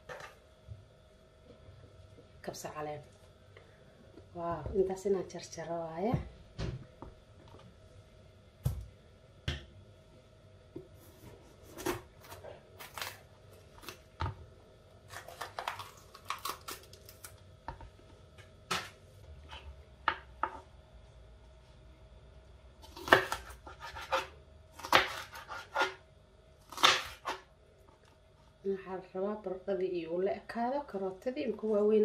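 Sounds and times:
knife chopping on cutting board: 23.0s - 26.0s.

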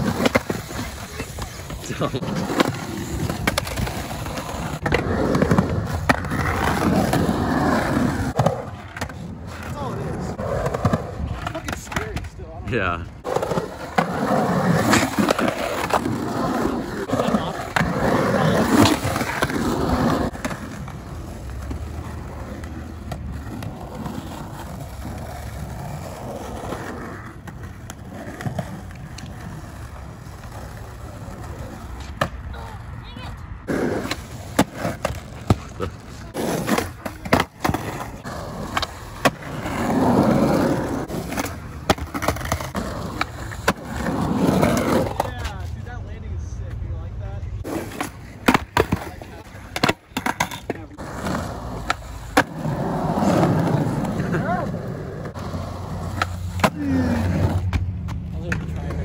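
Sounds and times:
skateboard rolling on concrete: 0.0s - 59.0s
skateboard clacking on ground: 8.3s - 12.6s, 33.7s - 45.8s, 47.6s - 54.6s, 55.3s - 59.0s
skateboard clacks: 34.0s - 45.6s.

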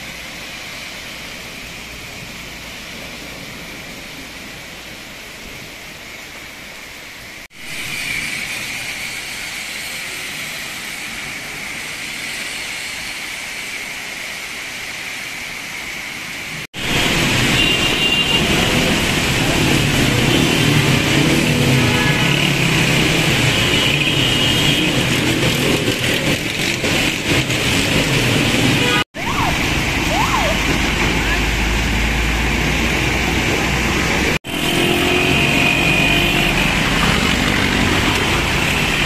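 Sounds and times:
tyres hissing on wet road: 0.0s - 39.0s
heavy rain falling: 13.8s - 39.0s
traffic engines running: 16.6s - 39.0s.

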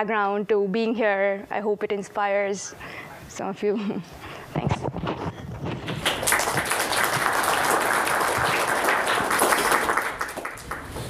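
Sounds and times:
audience applauding: 5.8s - 11.0s.

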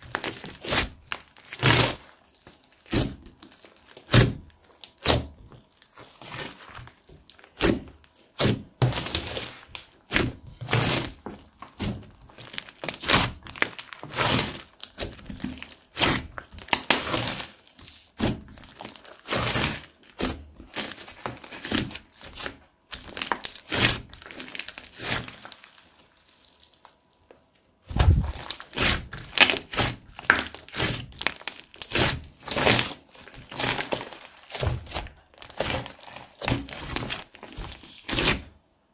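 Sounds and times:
slime squishing and popping: 0.0s - 38.5s.

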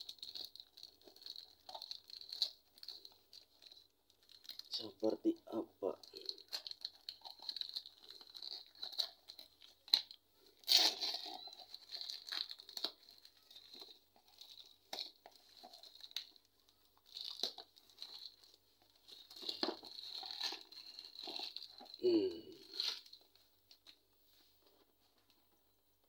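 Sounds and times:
plastic packaging tearing: 0.0s - 4.8s, 6.1s - 16.4s, 17.0s - 23.2s.

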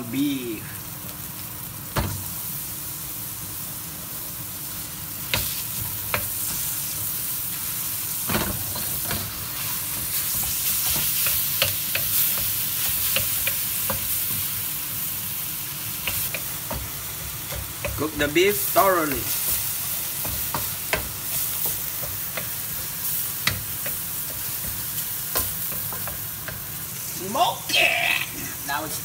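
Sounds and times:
meat sizzling in a wok: 0.0s - 29.0s
wooden spatula knocking on pan: 16.0s - 18.1s, 19.0s - 26.6s.

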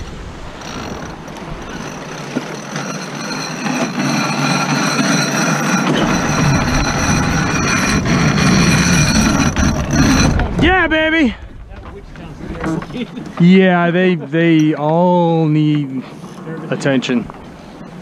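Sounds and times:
wind: 0.0s - 18.0s
high-pitched whine: 2.8s - 10.4s.

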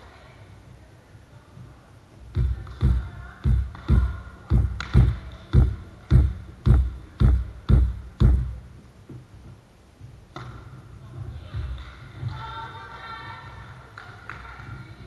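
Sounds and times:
ball bouncing on wooden floor: 2.3s - 12.5s.

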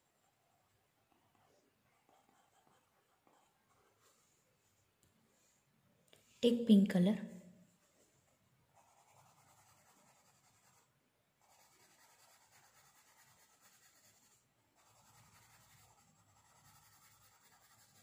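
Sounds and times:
pencil scratching on paper: 0.0s - 4.4s, 8.7s - 18.0s.

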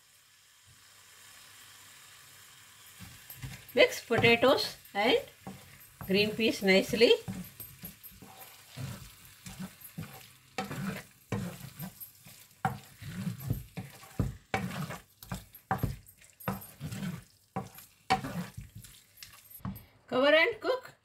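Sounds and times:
wooden spatula scraping a pan: 3.0s - 19.8s.

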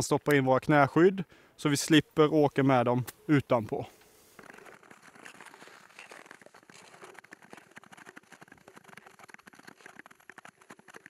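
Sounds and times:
skate blades scraping on ice: 4.1s - 11.0s.

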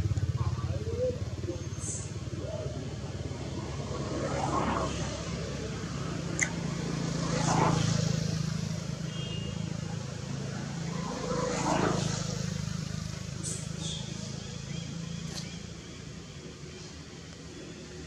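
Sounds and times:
vehicle engine hum: 0.0s - 18.0s
sharp click: 6.4s - 6.6s.

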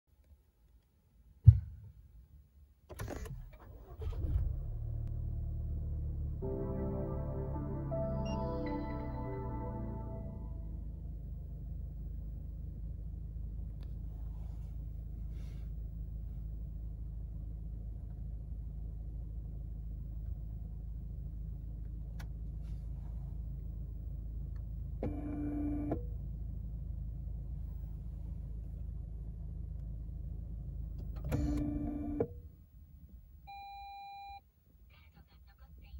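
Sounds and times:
sharp thump: 1.4s - 2.0s
car engine starting and idling: 2.9s - 33.8s.

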